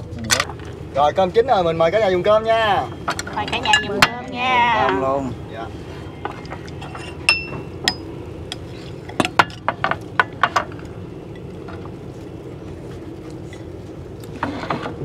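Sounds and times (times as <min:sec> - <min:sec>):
dishes clinking: 0:02.8 - 0:05.1, 0:06.2 - 0:08.1.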